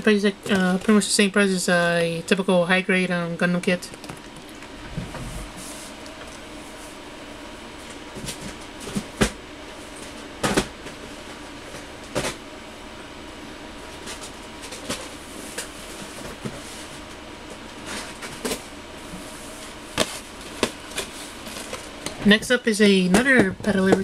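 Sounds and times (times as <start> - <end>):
steady room hum: 0.0 - 24.0
boxes knocking and rustling: 8.1 - 12.4, 19.9 - 22.0.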